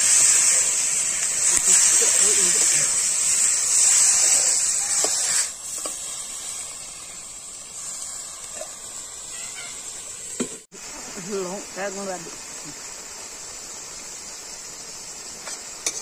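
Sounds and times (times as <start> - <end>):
chicken sizzling in metal pan: 0.0 - 16.0.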